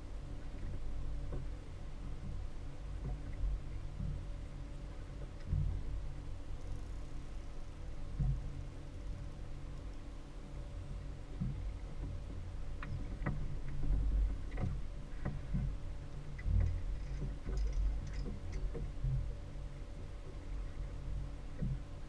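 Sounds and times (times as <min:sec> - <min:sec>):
light clicks and knocks: 0:11.3 - 0:19.3.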